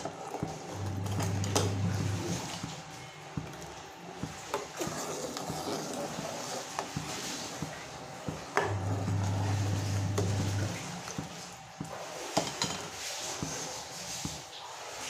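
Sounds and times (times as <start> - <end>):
ladle scraping metal pot: 4.4 - 11.2.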